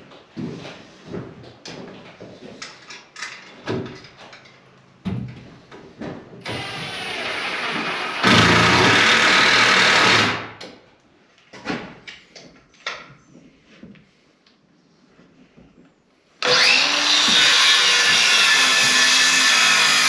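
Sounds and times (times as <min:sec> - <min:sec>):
power drill into wood: 0:06.4 - 0:10.6, 0:16.4 - 0:20.0.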